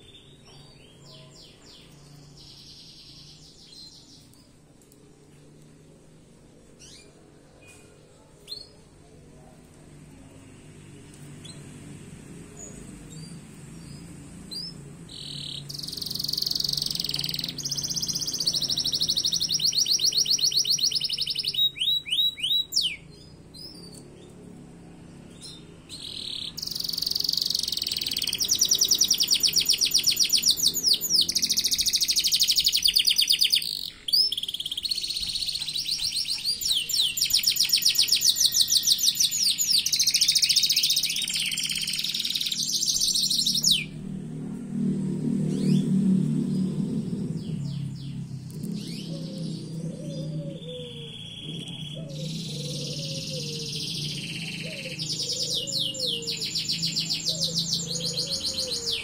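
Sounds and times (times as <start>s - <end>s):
songbird trilling and whistling: 13.1s - 24.0s, 25.3s - 44.0s, 47.4s - 59.0s.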